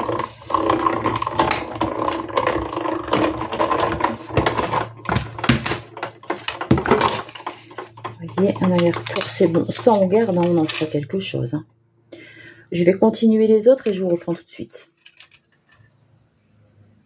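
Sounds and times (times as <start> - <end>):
die-cutting machine whirring: 0.0 - 10.6
plastic plates clicking and knocking: 0.0 - 10.9.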